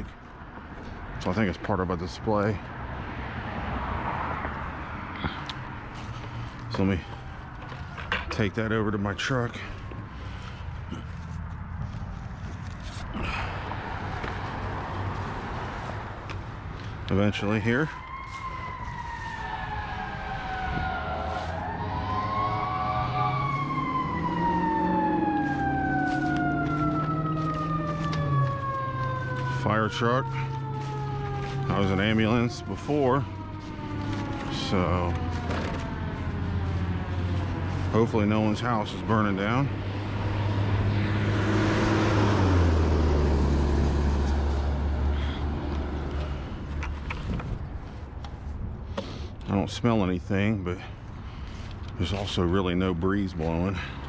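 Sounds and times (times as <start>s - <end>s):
fire truck siren wailing: 2.1s - 11.0s, 13.2s - 48.6s.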